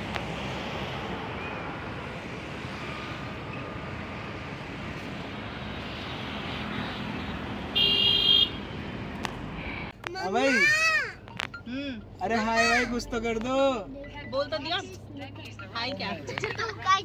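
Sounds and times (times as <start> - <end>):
distant vehicles humming: 0.0 - 9.9.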